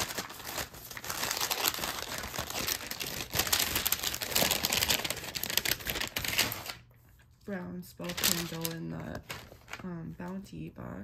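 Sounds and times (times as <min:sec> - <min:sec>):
packaging crinkling: 0:00.0 - 0:06.9, 0:08.0 - 0:09.9.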